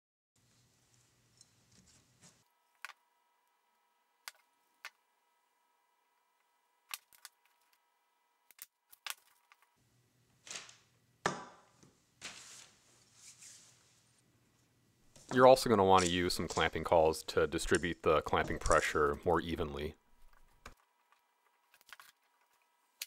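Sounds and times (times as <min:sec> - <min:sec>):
faint steady whine: 0:00.4 - 0:08.6.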